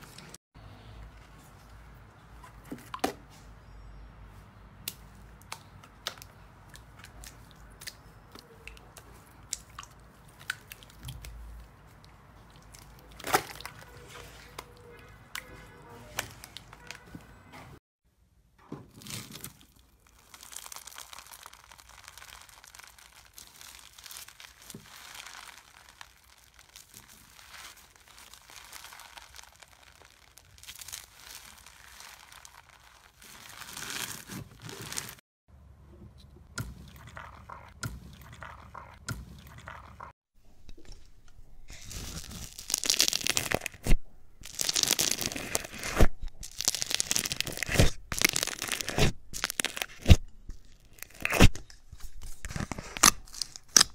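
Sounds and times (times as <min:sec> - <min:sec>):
crunchy slime crackling and popping: 0:19.0 - 0:35.2, 0:41.7 - 0:53.9.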